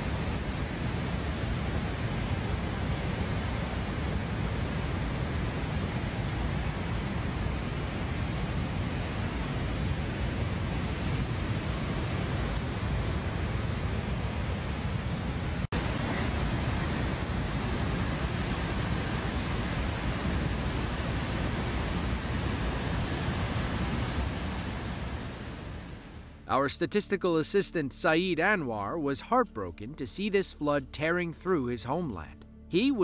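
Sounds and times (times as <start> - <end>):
river rushing: 0.0 - 26.2.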